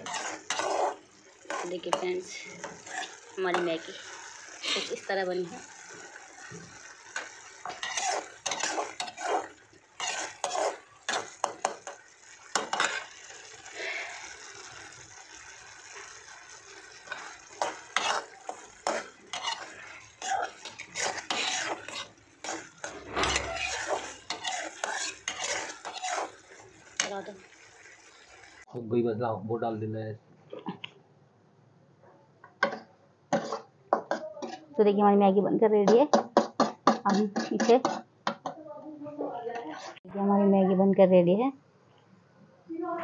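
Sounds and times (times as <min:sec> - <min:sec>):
metal spatula scraping metal pan: 0:00.0 - 0:28.6, 0:32.6 - 0:34.8, 0:36.4 - 0:38.6, 0:39.2 - 0:40.0.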